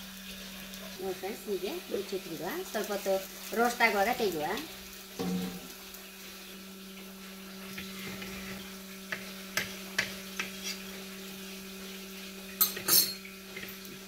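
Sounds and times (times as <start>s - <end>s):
metal turner scraping pan: 7.7s - 10.9s.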